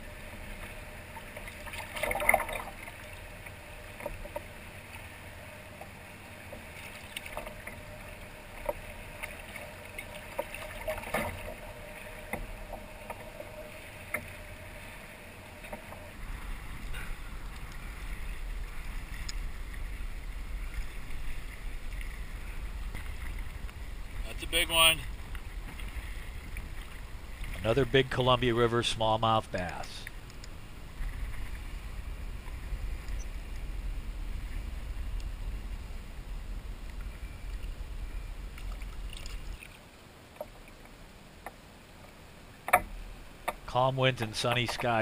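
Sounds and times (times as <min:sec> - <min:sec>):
small clicks and water sounds: 0:00.1 - 0:45.0
wind rumble on microphone: 0:30.1 - 0:39.7.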